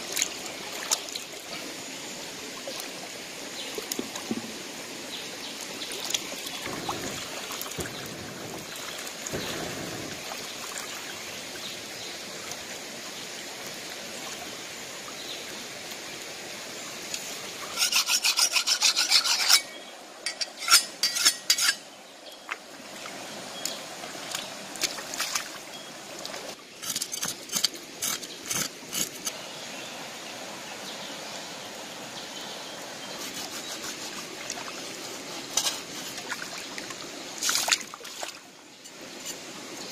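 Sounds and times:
stream water running: 0.0s - 39.9s
knife scraping fish scales: 17.7s - 21.8s, 26.8s - 29.4s, 33.2s - 34.3s.

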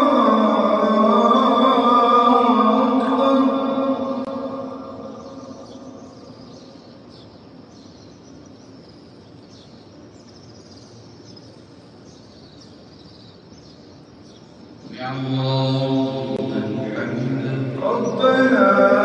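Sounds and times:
amplified prayer echo: 0.0s - 7.1s, 14.8s - 19.0s
open-air ambience: 0.0s - 19.0s
small birds chirping: 4.2s - 19.0s.

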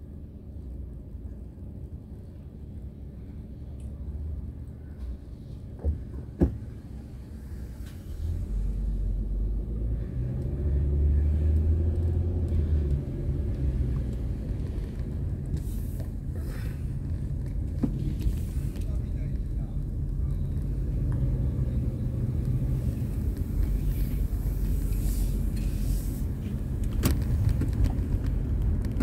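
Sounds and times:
car engine and road rumble: 0.0s - 29.0s.

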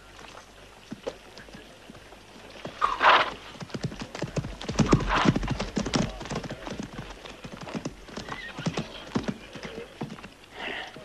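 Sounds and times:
horse hooves clopping on dirt: 0.0s - 11.0s
horse calling: 2.7s - 3.5s, 4.5s - 10.8s.

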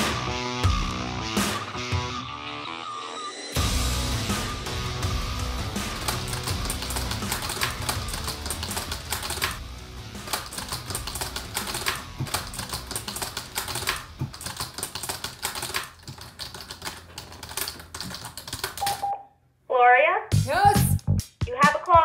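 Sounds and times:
background music: 0.0s - 15.6s, 20.3s - 22.0s
rapid keyboard typing: 5.6s - 9.6s, 10.2s - 19.1s.

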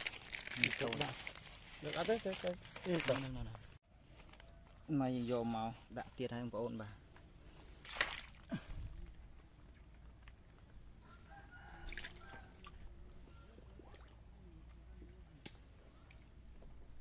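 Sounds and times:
water dripping and splashing: 7.8s - 8.5s, 11.8s - 14.2s
rooster crowing faintly: 11.0s - 13.9s.

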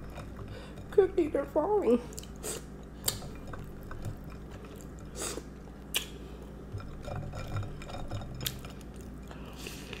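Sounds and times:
chewing crunchy cookie: 2.0s - 10.0s.

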